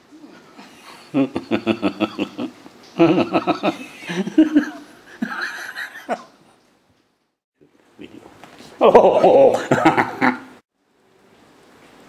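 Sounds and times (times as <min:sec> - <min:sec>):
person laughing: 0:00.6 - 0:06.4, 0:08.8 - 0:10.6.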